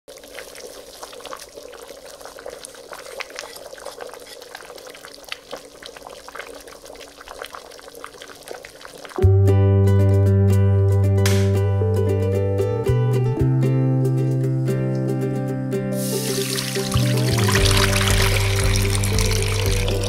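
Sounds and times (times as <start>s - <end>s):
pot of broth bubbling: 0.1s - 9.2s, 16.2s - 20.0s.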